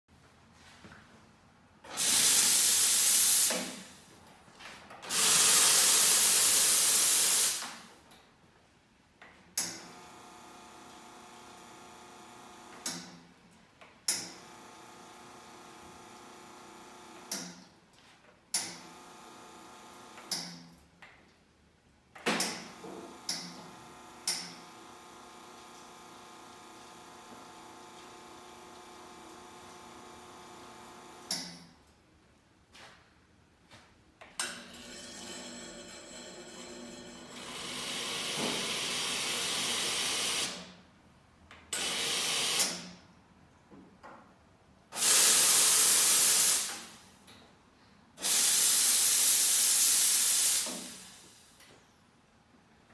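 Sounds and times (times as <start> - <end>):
steam wand hissing: 1.9 - 3.9, 45.0 - 47.0, 48.2 - 51.4.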